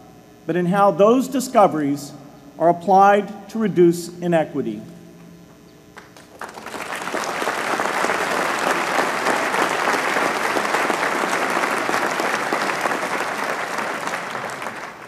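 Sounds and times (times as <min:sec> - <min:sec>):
audience applauding: 0:06.0 - 0:15.0.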